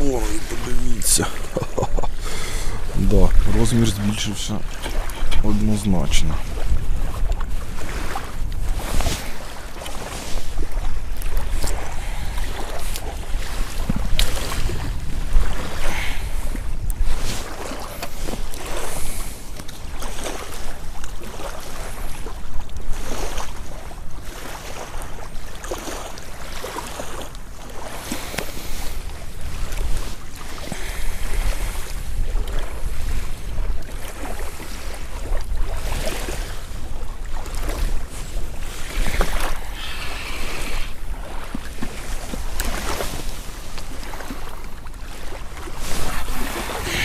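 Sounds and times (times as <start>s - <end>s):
wind buffeting microphone: 0.0s - 24.4s, 27.8s - 47.0s.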